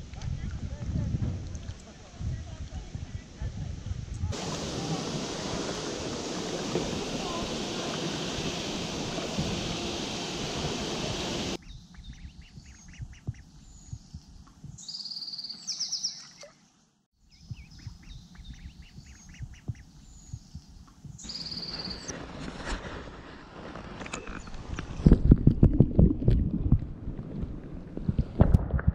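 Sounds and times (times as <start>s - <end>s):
water rushing over weir: 4.4s - 11.6s
birds peeping and chirping: 4.4s - 16.5s, 17.2s - 22.1s.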